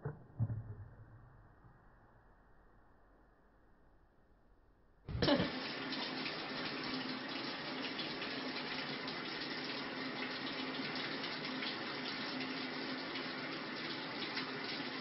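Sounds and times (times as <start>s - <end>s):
running water rushing: 5.2s - 15.0s.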